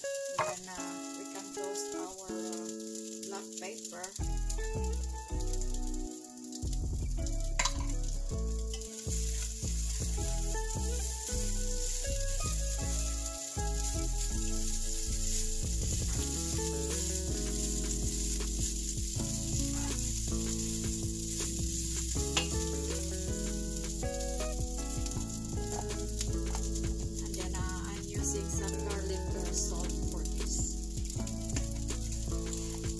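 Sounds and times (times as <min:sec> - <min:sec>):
background music: 0:00.0 - 0:32.9
rice sizzling in a pan: 0:00.0 - 0:32.9
wooden spatula stirring: 0:07.3 - 0:32.9.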